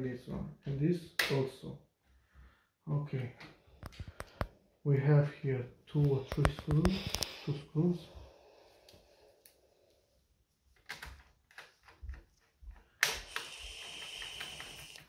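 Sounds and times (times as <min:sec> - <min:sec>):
screws and screwdriver clicking on metal: 0:13.0 - 0:15.0.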